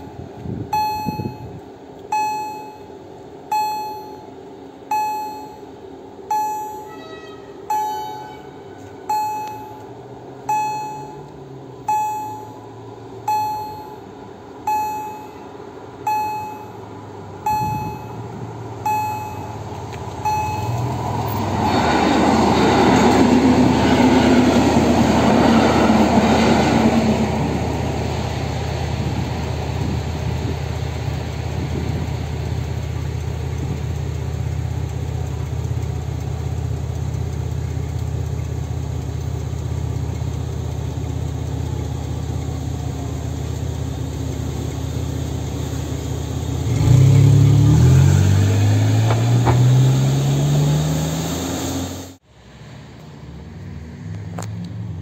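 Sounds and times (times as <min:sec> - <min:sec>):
low hum: 0:00.0 - 0:50.2
level crossing warning tone: 0:00.7 - 0:21.8
car engine revving: 0:17.6 - 0:30.0, 0:45.0 - 0:52.2
train wheels on rails: 0:19.6 - 0:32.1.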